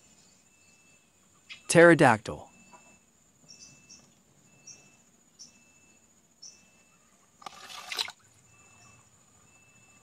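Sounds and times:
insects chirping: 0.0 - 10.0
toy splashing into water: 7.4 - 8.3.

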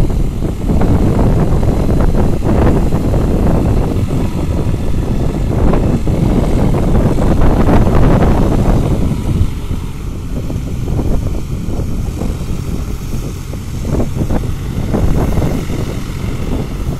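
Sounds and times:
tractor diesel engine running: 0.0 - 16.9.

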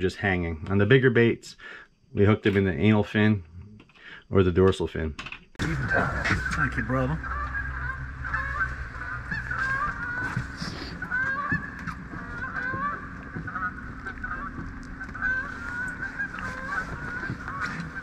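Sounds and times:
flock of birds calling: 5.6 - 18.0
steady low hum: 5.6 - 18.0.

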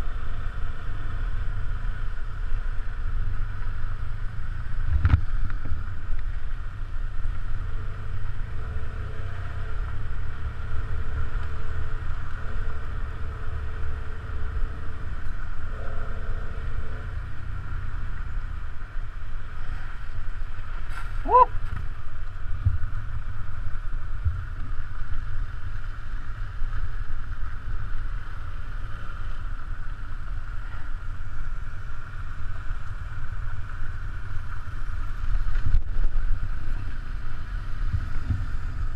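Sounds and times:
motorcycle engine rumble: 0.0 - 38.9
wind on microphone: 29.3 - 38.9.

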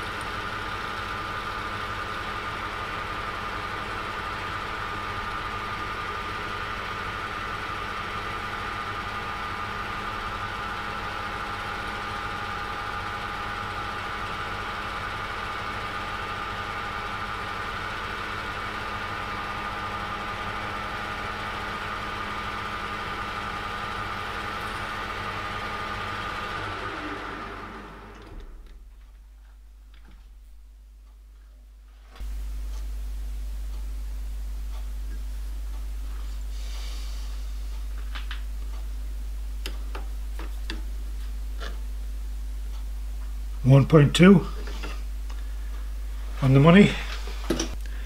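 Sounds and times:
metal lathe motor hum and whine: 0.0 - 28.4.

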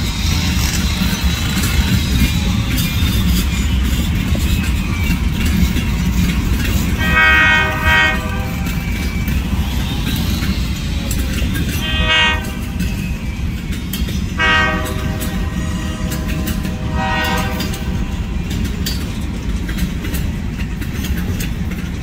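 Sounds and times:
freight cars rumbling past: 0.0 - 22.0
locomotive air horn blasts: 7.0 - 9.0, 11.7 - 13.0, 14.4 - 18.2.

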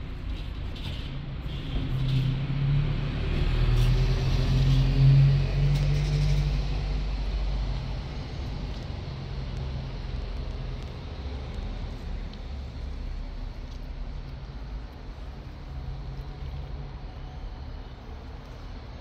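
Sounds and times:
vehicle engine passing: 2.2 - 9.5.

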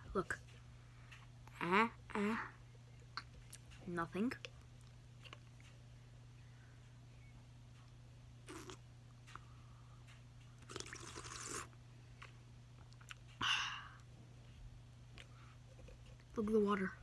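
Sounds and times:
steady low hum: 0.0 - 17.0
boy blowing and sipping: 8.4 - 8.8, 10.6 - 11.8.

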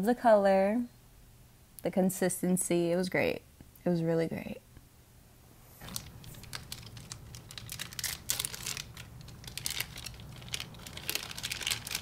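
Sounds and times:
plastic bag crinkling: 5.8 - 12.0.

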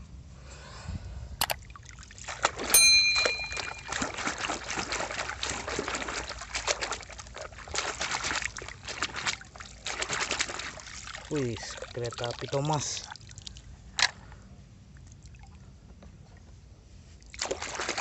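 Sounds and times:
water splashing in a tub: 1.5 - 2.7, 3.6 - 14.2, 17.2 - 18.0
click and ringing ding: 2.8 - 4.2.

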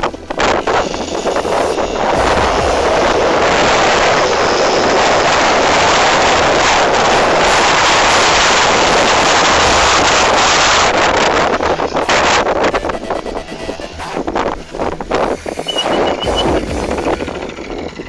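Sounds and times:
scooter engine running loud: 1.8 - 11.3.

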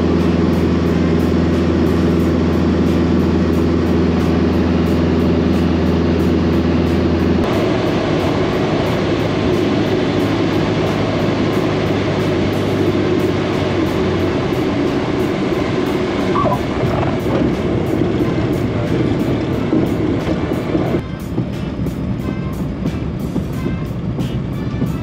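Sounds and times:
plane rolling on runway: 0.0 - 25.0
propeller plane engine drone: 0.0 - 25.0.

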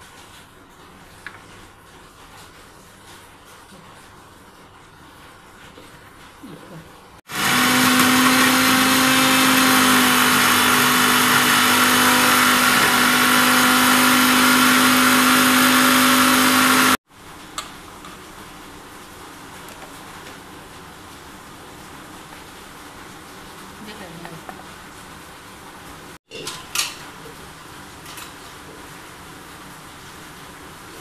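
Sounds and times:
mixer grinder whirring: 7.3 - 17.0.

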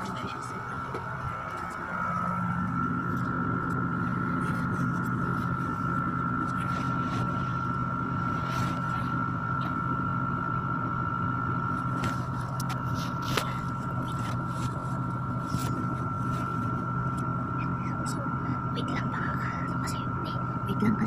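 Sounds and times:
small motor humming and whining: 0.0 - 21.0.

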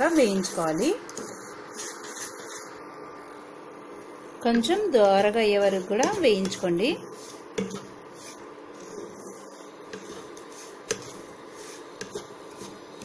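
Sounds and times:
spatula scraping semolina in pan: 0.0 - 2.8, 5.7 - 13.0
steady hum: 0.0 - 13.0.

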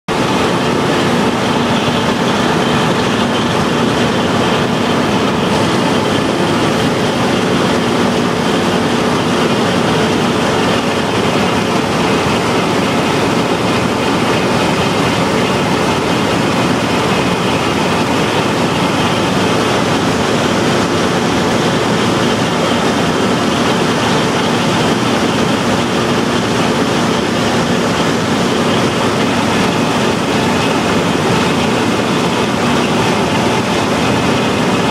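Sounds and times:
auger discharging grain: 0.1 - 34.9
combine harvester running: 0.1 - 34.9.

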